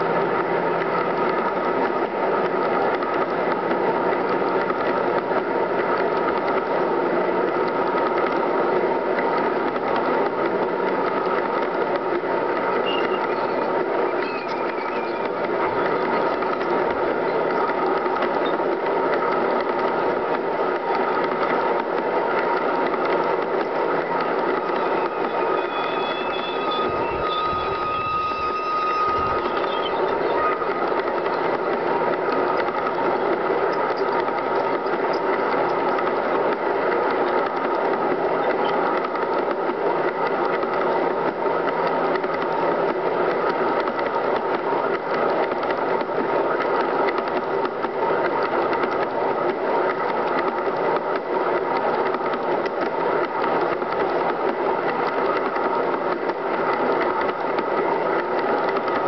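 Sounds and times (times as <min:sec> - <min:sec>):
high pitched tone: 0:24.0 - 0:31.6.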